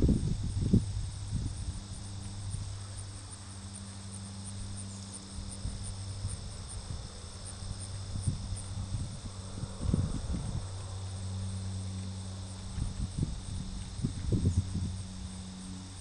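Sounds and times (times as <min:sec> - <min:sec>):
insects chirping trills: 0:00.0 - 0:16.0
low steady hum: 0:00.0 - 0:16.0.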